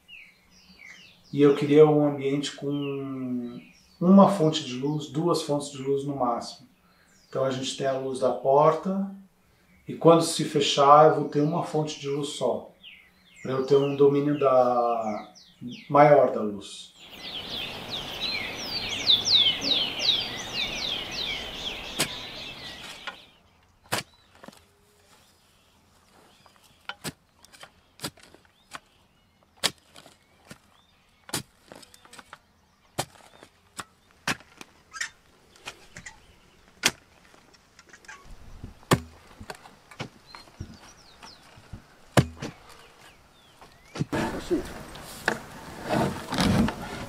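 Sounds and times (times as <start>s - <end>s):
bird chirping: 0.0s - 8.5s, 10.8s - 45.6s
steady outdoor hiss: 0.0s - 47.0s
hand tools knocking hard soil: 26.5s - 28.9s, 31.3s - 32.4s, 33.0s - 34.6s, 38.6s - 42.8s.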